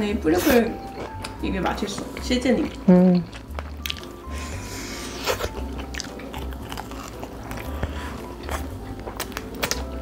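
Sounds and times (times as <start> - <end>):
chewing crispy fried chicken: 2.1 - 10.0.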